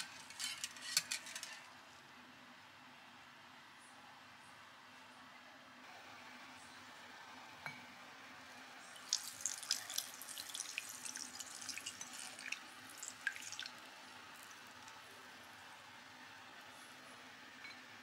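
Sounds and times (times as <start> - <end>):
liquid trickling through a sieve: 9.0 - 15.0.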